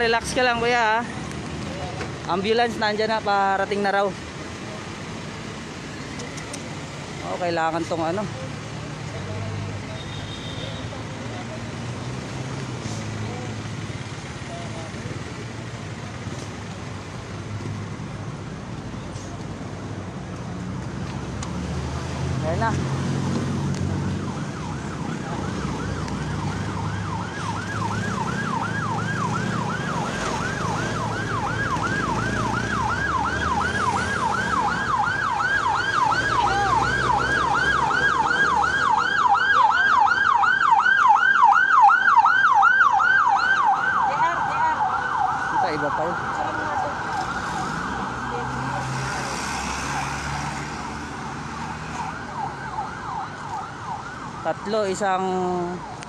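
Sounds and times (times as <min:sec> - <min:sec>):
siren in fast yelp: 0:24.2 - 0:48.7.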